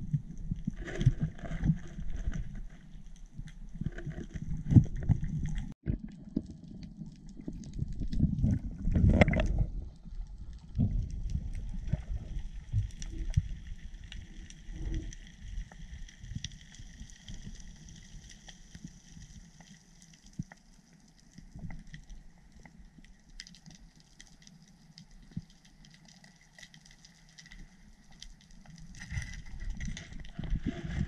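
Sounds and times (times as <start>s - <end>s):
faint crackling clicks: 0.3s - 31.0s
water rushing underwater: 3.8s - 17.8s.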